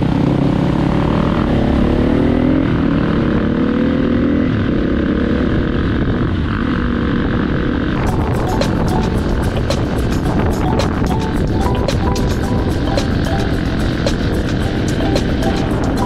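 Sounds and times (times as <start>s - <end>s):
wind rushing: 8.0s - 16.0s.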